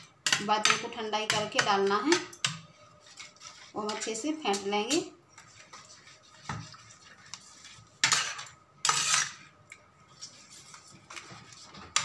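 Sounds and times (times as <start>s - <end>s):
metal spoon scraping a steel pan: 0.0s - 6.0s, 7.4s - 9.5s.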